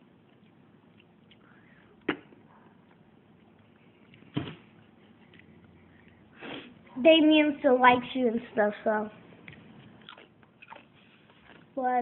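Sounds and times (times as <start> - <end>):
tortilla chip crunching: 9.5 - 11.7.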